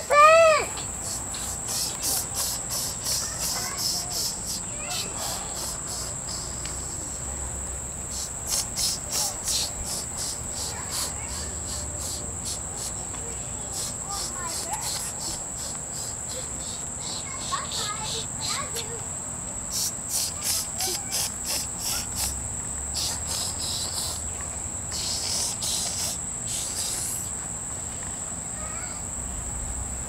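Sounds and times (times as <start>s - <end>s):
child squealing: 0.0s - 0.8s, 1.7s - 6.1s, 20.2s - 22.3s
high-pitched insect drone: 0.0s - 27.4s
insect chirping: 0.0s - 30.0s.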